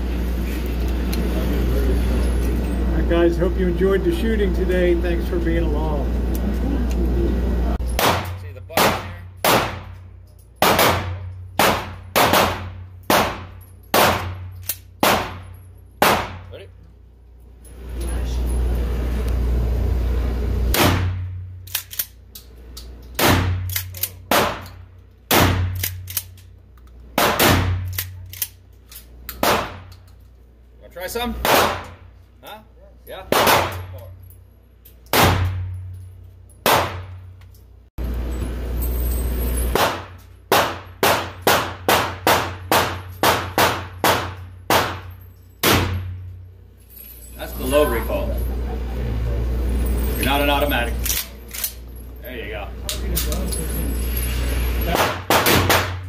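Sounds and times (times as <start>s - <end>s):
shotgun shots echoing: 8.0s - 10.0s, 10.6s - 15.4s, 16.0s - 16.4s, 27.2s - 27.9s, 31.4s - 31.9s, 33.3s - 33.8s, 36.6s - 37.1s, 39.8s - 45.0s, 54.9s - 56.0s
gunshots with echo: 10.6s - 14.4s, 54.9s - 56.0s.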